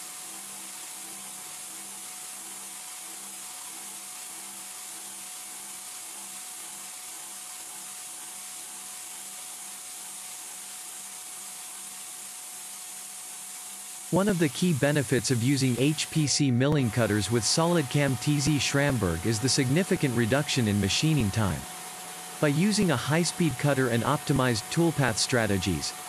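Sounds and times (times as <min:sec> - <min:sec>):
milling machine cutting hiss: 0:00.0 - 0:26.0
faint steady hum: 0:13.6 - 0:26.0.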